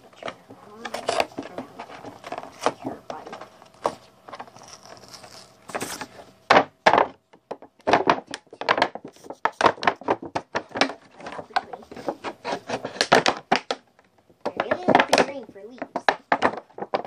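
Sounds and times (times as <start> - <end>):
plastic toy tapping on floor: 14.4 - 17.0.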